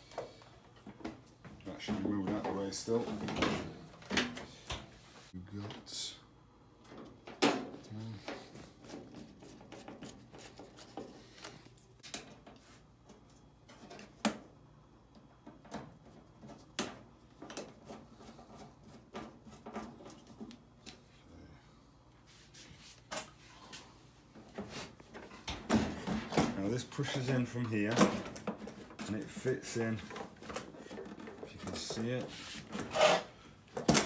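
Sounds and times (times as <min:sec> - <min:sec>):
plastic and sheet metal handled: 0:24.5 - 0:34.0.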